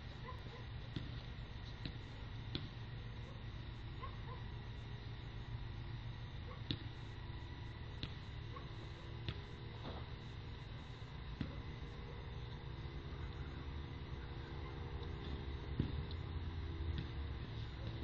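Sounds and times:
faint high whine: 0:00.0 - 0:18.0
low electrical hum: 0:00.0 - 0:18.0.

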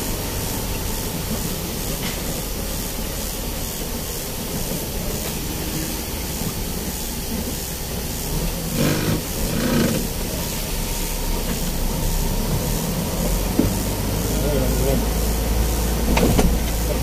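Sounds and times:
low engine rumble: 0:00.0 - 0:17.0
rain and tyre spray hiss: 0:00.0 - 0:17.0.

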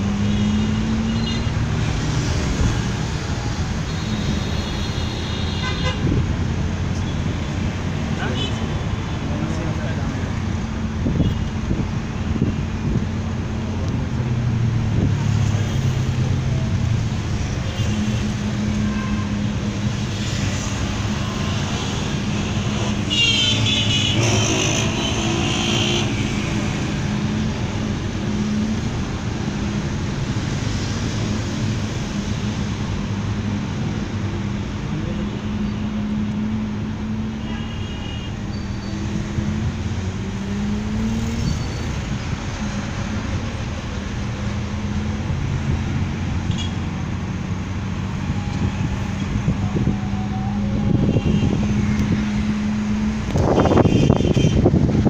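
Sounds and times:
vehicle engine and road noise: 0:00.0 - 0:55.0.

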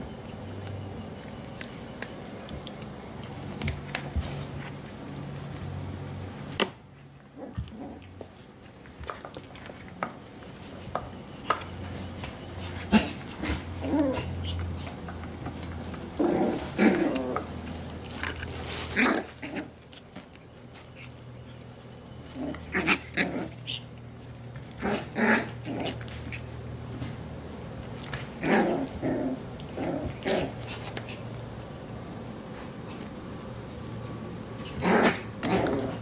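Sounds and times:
puppies tapping and clicking: 0:00.0 - 0:05.8, 0:06.5 - 0:18.8, 0:19.6 - 0:31.7
low steady hum: 0:00.0 - 0:36.0
puppy whining: 0:11.4 - 0:24.0.

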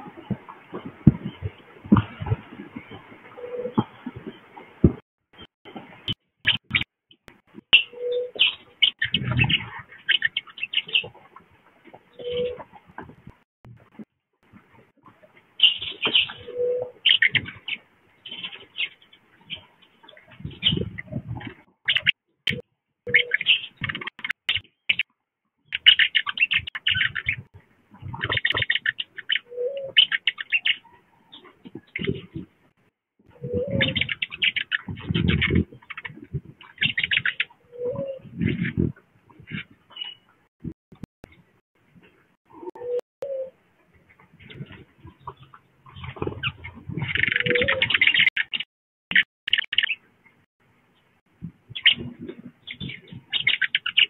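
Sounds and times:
dove cooing: 0:03.4 - 0:03.9, 0:07.8 - 0:09.8, 0:12.1 - 0:12.7, 0:16.1 - 0:17.5, 0:29.5 - 0:30.1, 0:33.3 - 0:34.3, 0:37.2 - 0:38.9, 0:45.3 - 0:48.1
wild birds chipping: 0:07.8 - 0:12.7, 0:15.6 - 0:21.2, 0:23.1 - 0:32.5, 0:33.5 - 0:40.4, 0:44.0 - 0:50.1, 0:51.7 - 0:54.0.

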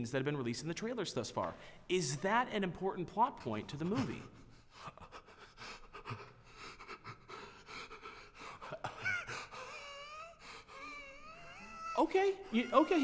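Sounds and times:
man panting heavily: 0:04.1 - 0:11.4.

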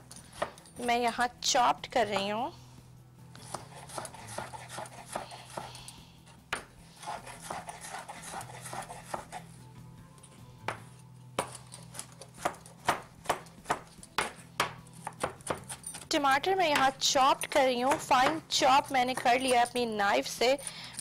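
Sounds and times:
knife chopping on wooden board: 0:03.5 - 0:05.7, 0:06.5 - 0:09.4, 0:10.7 - 0:11.6, 0:12.4 - 0:15.8, 0:17.8 - 0:18.4.

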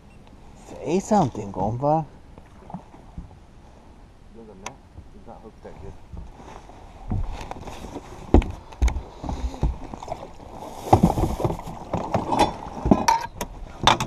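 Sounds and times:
knocks and scrapes on boat deck: 0:05.8 - 0:14.0.

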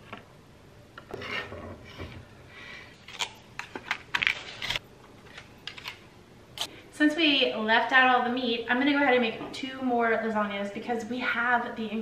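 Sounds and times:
metal spatula scraping a board: 0:01.1 - 0:02.2.

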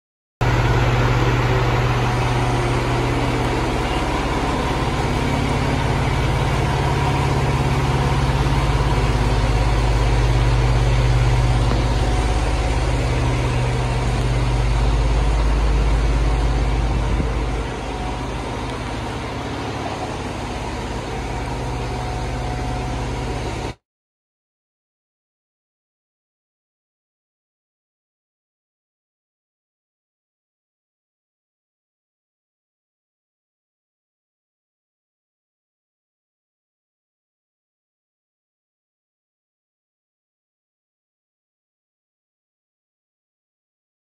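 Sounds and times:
diesel engine idling: 0:00.4 - 0:23.8.

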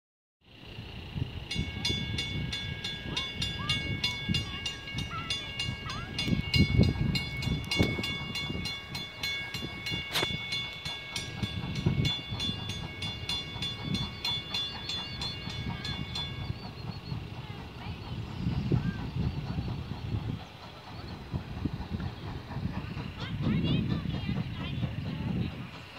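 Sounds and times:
steam locomotive rumble: 0:00.5 - 0:25.9
railroad crossing bell ringing: 0:00.9 - 0:18.2.

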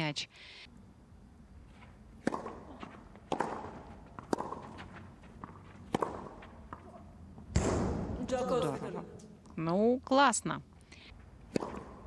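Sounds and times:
ball bouncing: 0:02.2 - 0:08.1, 0:11.5 - 0:12.0
racket hitting tennis ball: 0:02.2 - 0:08.2, 0:11.5 - 0:12.0.

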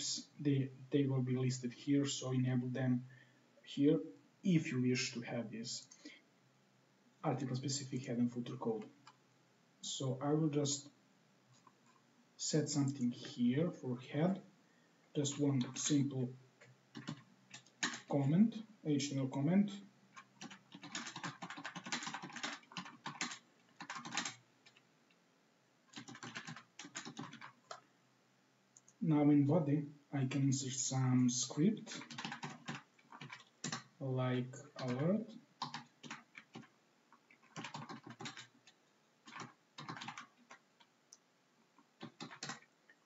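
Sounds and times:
computer keyboard typing: 0:16.9 - 0:18.1, 0:20.1 - 0:24.8, 0:25.9 - 0:27.8, 0:31.8 - 0:34.0, 0:34.7 - 0:40.9, 0:42.0 - 0:42.7.

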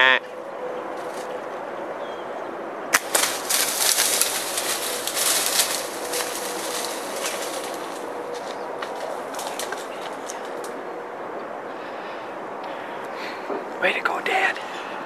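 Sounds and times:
deer running through dry leaves: 0:03.0 - 0:10.6.

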